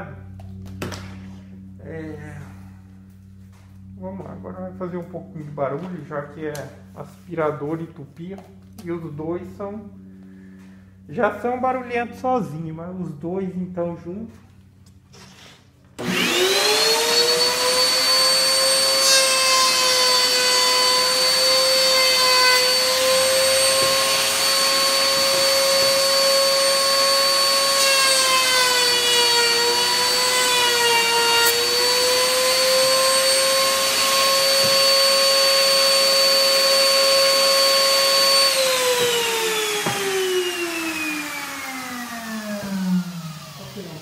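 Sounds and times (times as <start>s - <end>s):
shop vacuum running: 0.0s - 44.0s
router motor whining: 16.0s - 44.0s.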